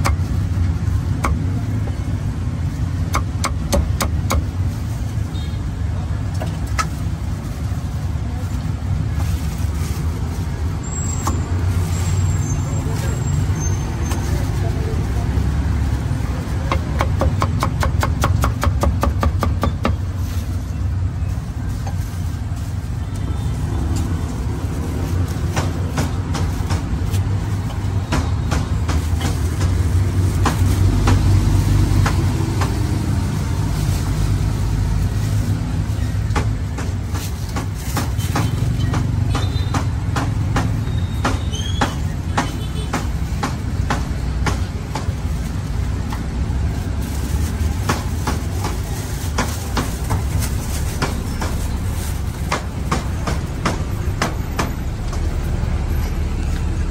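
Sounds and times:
cleaver chopping meat: 0:03.0 - 0:04.6, 0:16.7 - 0:20.0.

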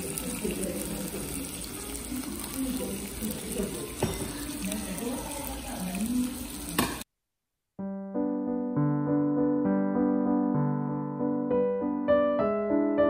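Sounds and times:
faint voices: 0:00.0 - 0:06.8
food sizzling on hot plate: 0:00.0 - 0:07.1.

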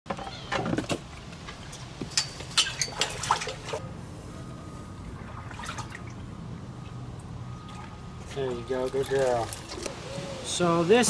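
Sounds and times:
water splashing: 0:02.4 - 0:03.8, 0:04.9 - 0:10.1
plinking water drips: 0:05.0 - 0:09.8.

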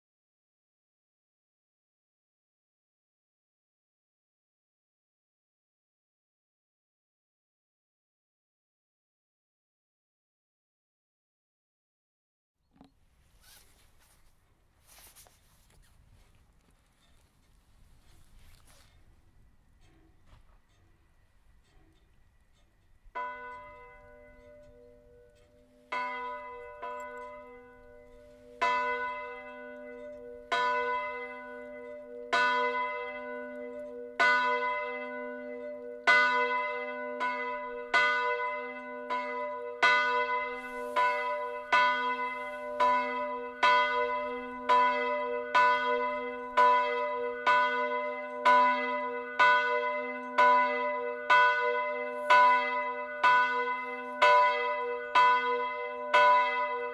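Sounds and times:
church bell ringing: 0:23.0 - 0:56.9.

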